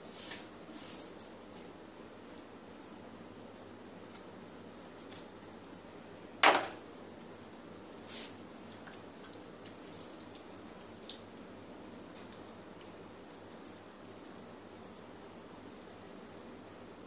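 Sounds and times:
kitchen handling noise: 6.4 - 6.8
loud knock: 6.4 - 6.8.

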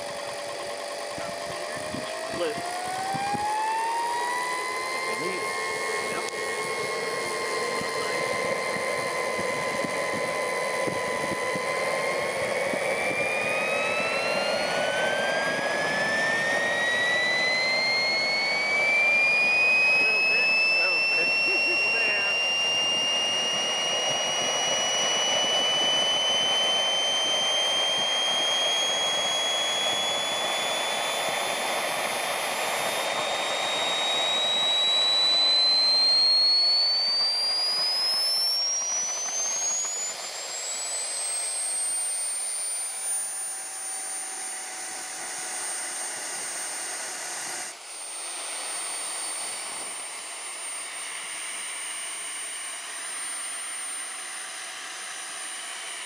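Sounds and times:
rushing exhaust noise: 0.0 - 40.1
jet turbine whine: 0.0 - 56.0.

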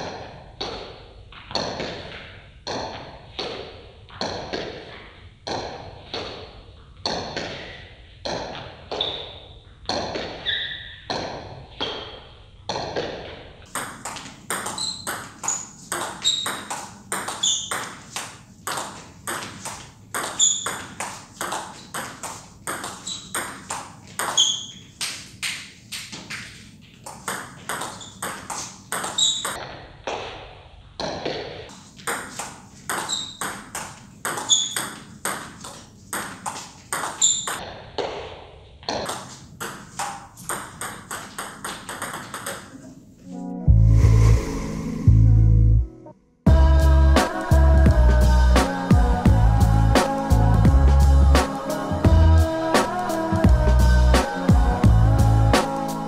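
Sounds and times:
ball clicking off rackets: 11.1 - 29.6, 31.0 - 42.8
ball pinging on table: 13.7 - 24.8, 27.1 - 29.6, 32.0 - 37.6, 38.9 - 42.9.

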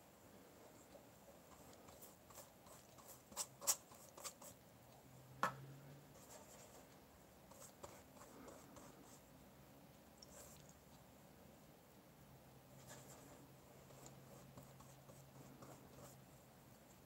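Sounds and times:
brush scratching on paper: 1.5 - 4.6, 6.2 - 9.2, 12.8 - 16.4
brush tapping palette: 12.8 - 16.2.

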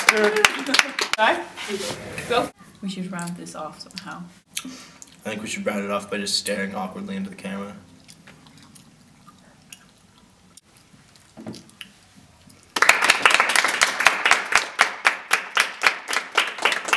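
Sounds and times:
hands clapping loudly: 0.0 - 1.3, 12.8 - 16.9
faint small noises: 1.5 - 12.8.

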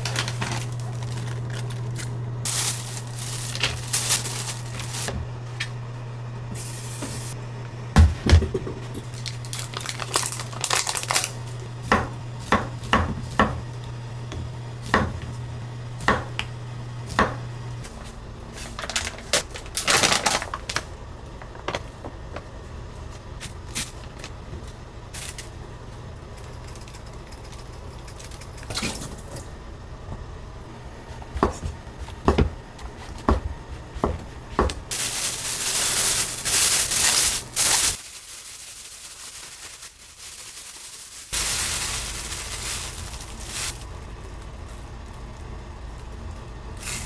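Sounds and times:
plastic bag crinkling: 0.0 - 5.1, 9.1 - 11.6, 18.7 - 20.9, 34.9 - 43.9.

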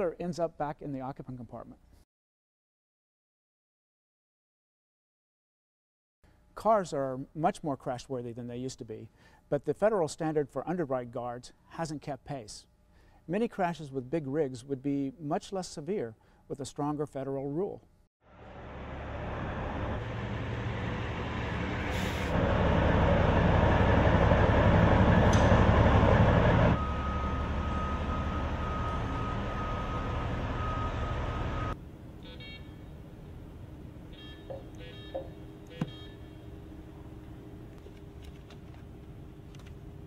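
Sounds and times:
diesel truck engine rumbling: 18.3 - 31.8
engine whine: 18.3 - 40.0.

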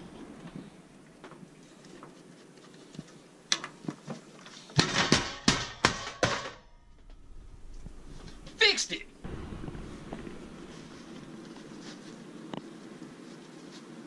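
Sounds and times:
sharp knocks: 4.8 - 6.8.

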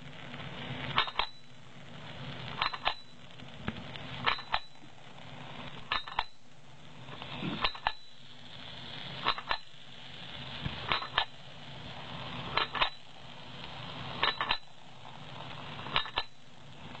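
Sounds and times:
steady machine hum: 0.0 - 17.0.

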